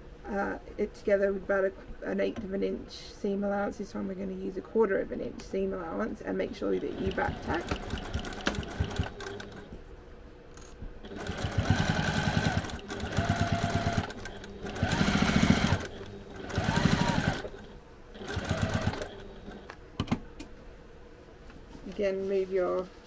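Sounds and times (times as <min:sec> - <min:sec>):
sewing machine stitching: 0:06.7 - 0:09.7, 0:11.0 - 0:19.7.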